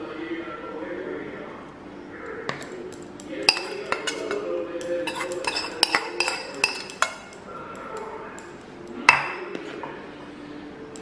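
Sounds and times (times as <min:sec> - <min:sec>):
metal spoon clinking on tin: 0:03.4 - 0:07.4.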